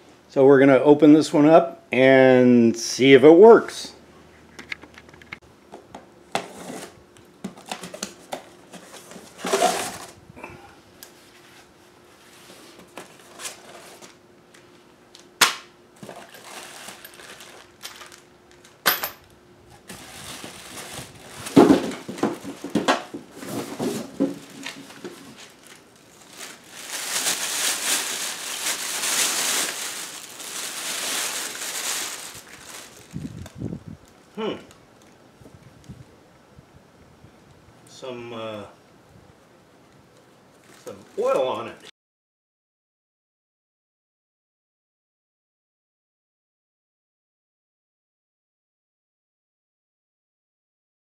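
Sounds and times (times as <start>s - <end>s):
plastic bag crinkling: 16.0s - 18.8s, 19.8s - 34.3s, 40.5s - 41.6s.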